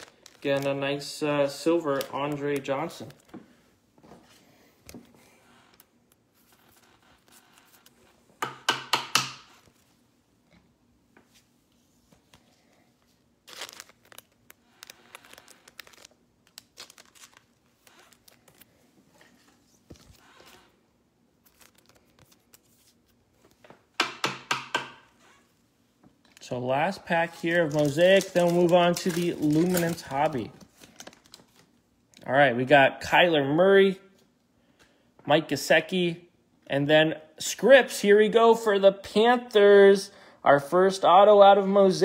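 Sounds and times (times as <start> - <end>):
foil wrappers crinkling: 0.0 - 3.3, 13.4 - 20.6, 21.4 - 23.2, 26.3 - 31.8.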